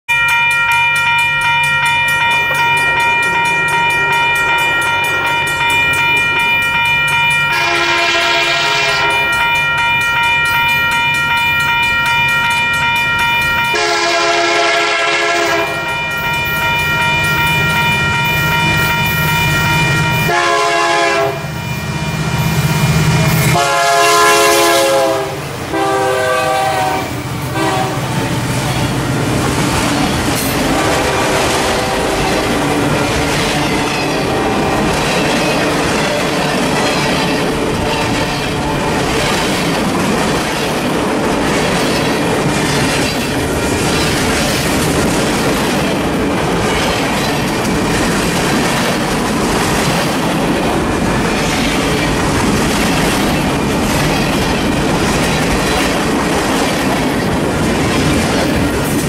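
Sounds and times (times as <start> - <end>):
high ringing tone: 0.1 - 14.4, 15.4 - 24.2
locomotive air horn blasts: 7.5 - 9.3, 13.7 - 16.0, 20.0 - 21.6, 23.5 - 28.2, 30.6 - 32.7, 34.1 - 34.9
wheels clattering on rails: 27.2 - 59.0.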